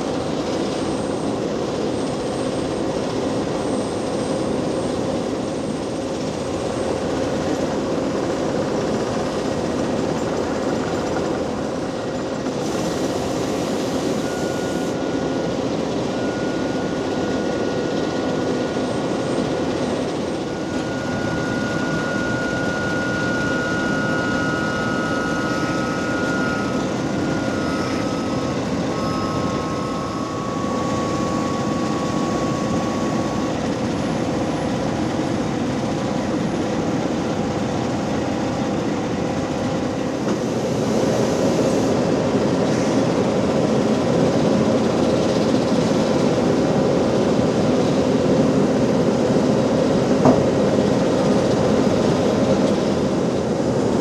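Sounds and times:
diesel engines running: 0:00.0 - 0:54.0
thin whining tones: 0:00.2 - 0:40.5.

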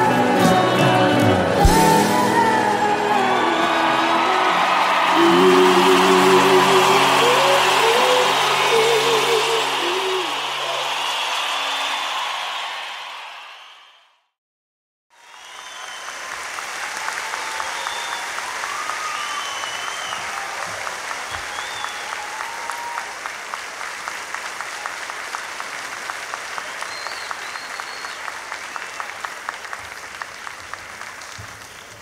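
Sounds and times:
rhythmic clapping: 0:00.0 - 0:13.0
audience applauding and cheering: 0:00.0 - 0:14.1, 0:15.1 - 0:32.0
high whistles: 0:15.2 - 0:20.4, 0:21.3 - 0:23.1, 0:26.7 - 0:29.2.

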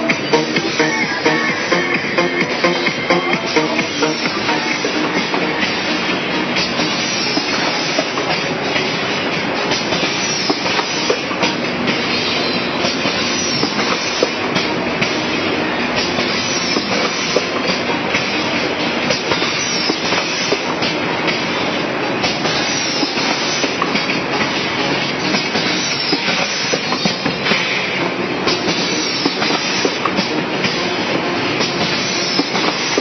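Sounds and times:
packaging machine clattering: 0:28.5 - 0:33.0.

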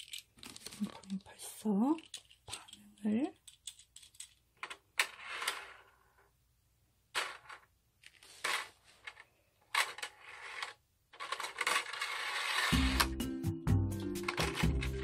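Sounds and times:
plastic toy figures clattering: 0:00.0 - 0:05.9, 0:07.1 - 0:13.1, 0:14.2 - 0:15.0.

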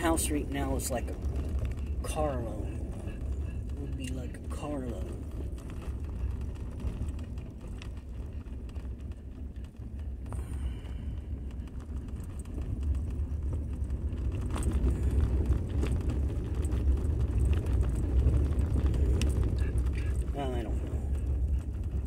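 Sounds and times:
car road and engine rumble: 0:00.0 - 0:22.0.

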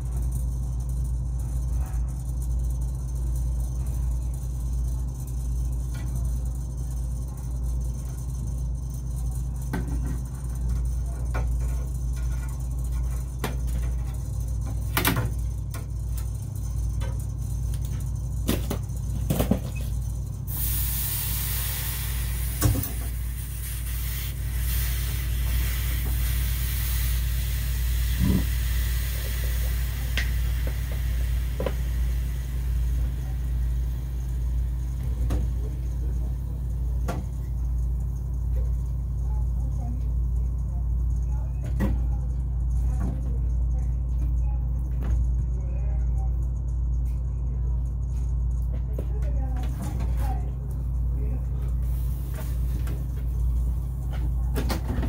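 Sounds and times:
steady low hum: 0:00.0 - 0:55.0
soldering torch hissing: 0:20.5 - 0:34.5.

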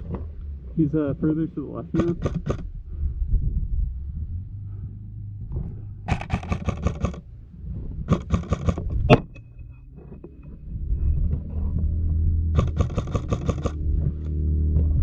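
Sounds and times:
low rumble: 0:00.0 - 0:15.0
airsoft rifle bursts: 0:02.0 - 0:02.6, 0:06.1 - 0:07.2.

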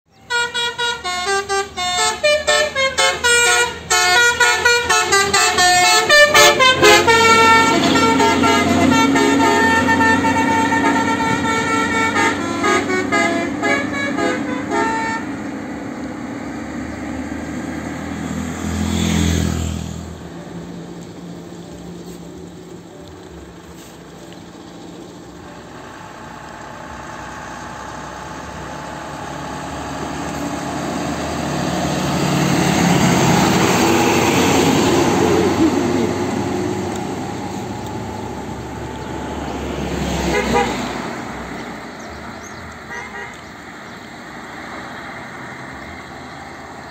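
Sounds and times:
bus musical horn playing tune: 0:00.2 - 0:15.6, 0:40.1 - 0:41.1, 0:42.9 - 0:43.4
heavy vehicle passing: 0:00.8 - 0:46.9
engine running: 0:01.3 - 0:44.9.

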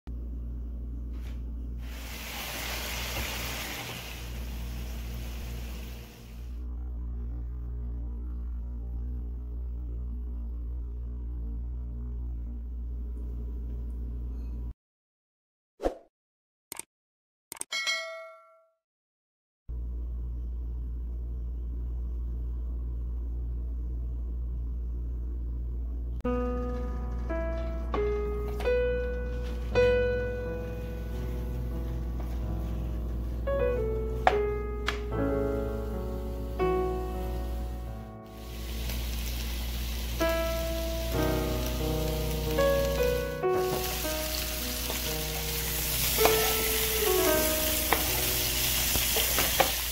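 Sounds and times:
steady low hum: 0:00.1 - 0:14.8, 0:19.7 - 0:49.2
meat sizzling in a frying pan: 0:01.9 - 0:06.0, 0:38.3 - 0:49.9
piano music: 0:26.2 - 0:49.9.

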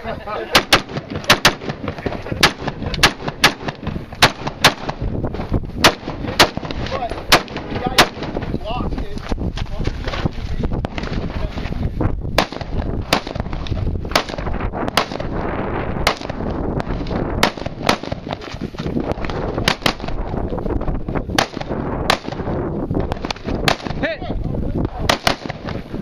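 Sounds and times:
rifle gunshots: 0:00.5 - 0:05.0, 0:05.8 - 0:08.5, 0:12.4 - 0:15.4, 0:16.0 - 0:18.5, 0:19.2 - 0:20.2, 0:21.4 - 0:22.5, 0:23.1 - 0:24.0, 0:25.0 - 0:25.8.

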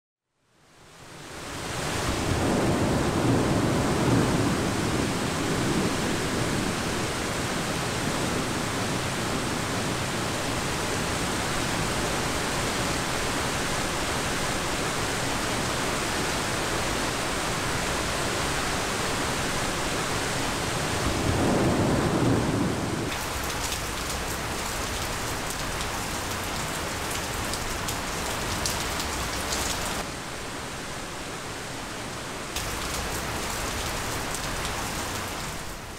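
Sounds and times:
heavy rain: 0:00.8 - 0:35.9
thunder rolling: 0:02.2 - 0:07.1, 0:21.0 - 0:30.0.

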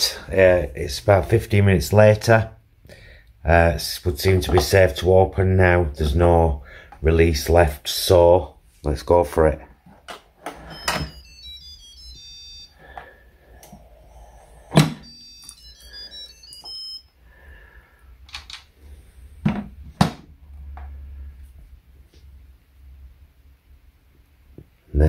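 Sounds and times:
electronic jingle: 0:10.6 - 0:12.9, 0:14.1 - 0:17.2.

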